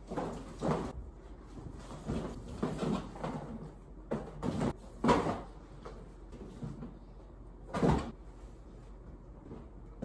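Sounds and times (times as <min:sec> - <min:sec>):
clunks and knocks of packing: 0:00.0 - 0:01.0, 0:01.6 - 0:06.9.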